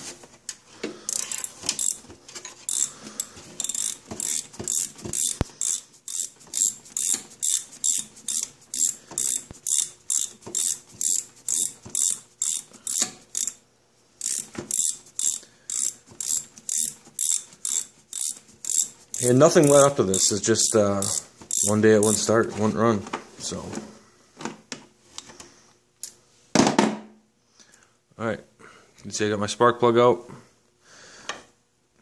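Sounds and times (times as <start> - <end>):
hand ratchet clicking: 1.1 - 2.0, 2.6 - 13.6, 14.2 - 22.3.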